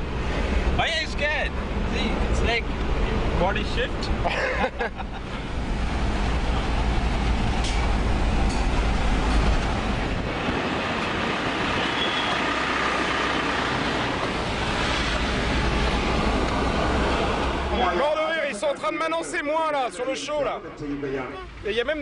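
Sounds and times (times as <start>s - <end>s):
low rumble of wind: 0.0s - 18.0s
car engine and road noise: 0.0s - 22.0s.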